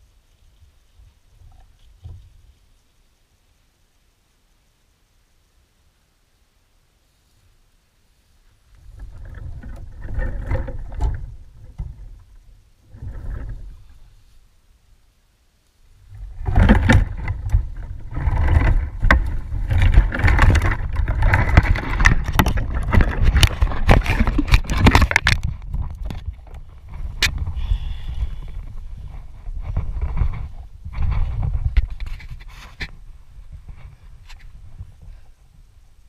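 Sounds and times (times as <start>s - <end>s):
rustling in sticks and leaves: 7.0s - 36.0s.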